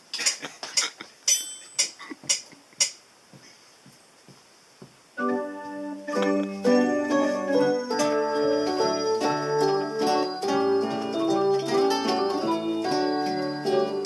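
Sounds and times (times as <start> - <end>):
metronome clicks: 5.2 - 6.6
electronic keyboard chords: 5.2 - 14.0.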